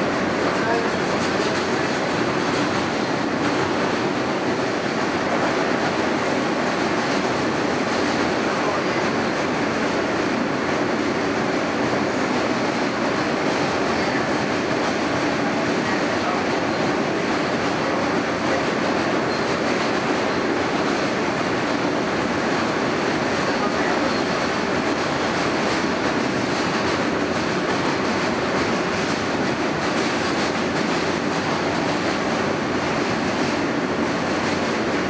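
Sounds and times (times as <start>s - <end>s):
subway car wheels rumbling on rails: 0.0s - 35.0s.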